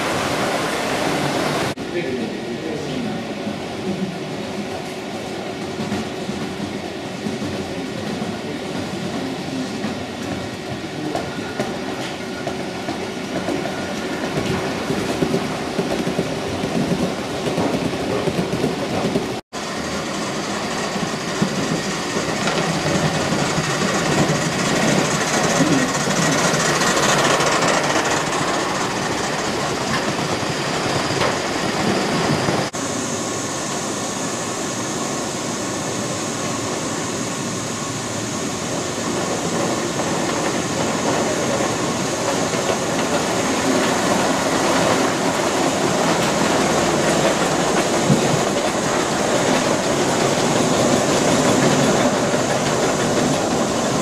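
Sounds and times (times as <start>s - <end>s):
model train wheels clattering on rails: 21.0s - 31.4s, 39.5s - 54.0s.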